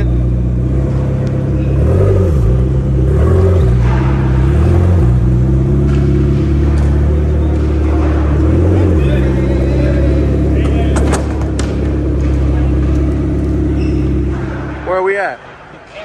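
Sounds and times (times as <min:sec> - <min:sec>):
car engine at low revs: 0:00.0 - 0:14.8.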